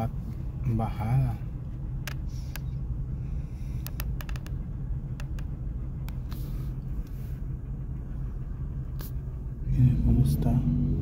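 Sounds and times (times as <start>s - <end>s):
truck engine and road noise: 0.0s - 11.0s.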